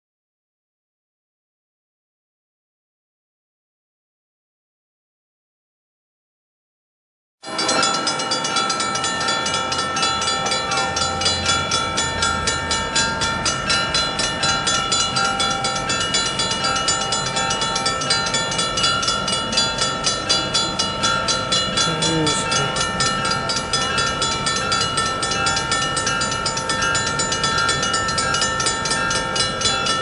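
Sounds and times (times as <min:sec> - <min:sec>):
railroad crossing bell ringing: 0:07.4 - 0:30.0.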